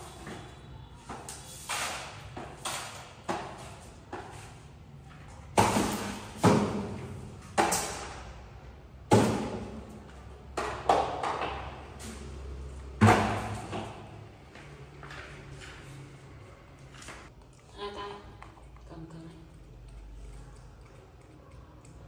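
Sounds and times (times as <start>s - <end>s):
sharp thuds echoing in tiled room: 0.0s - 4.3s, 5.5s - 12.2s, 12.9s - 14.3s.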